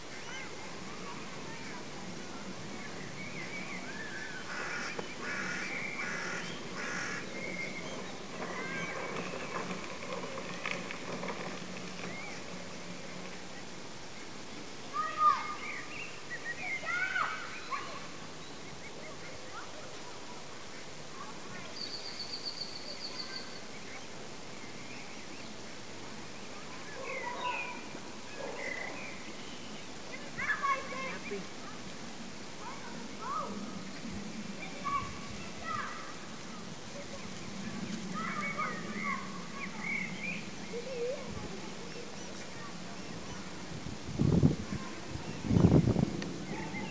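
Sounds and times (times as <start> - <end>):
outdoor hiss: 0.0 - 46.9
harsh rasping bird calls: 2.8 - 10.6
whistled bird notes: 15.4 - 19.7, 21.7 - 25.5.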